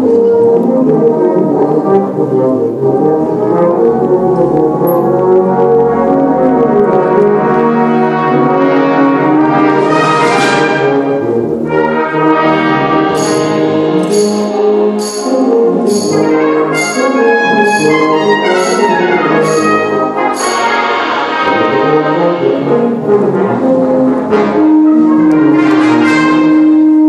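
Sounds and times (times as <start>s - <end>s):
brass band playing: 0.0s - 27.0s
tuba solo: 0.0s - 27.0s
sharp percussion strokes: 13.1s - 21.1s.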